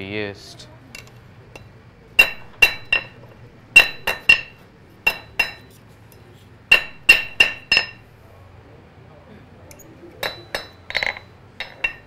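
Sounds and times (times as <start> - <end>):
hammer striking iron on anvil: 1.6 - 3.2, 3.8 - 5.7, 6.7 - 8.0, 10.2 - 12.0.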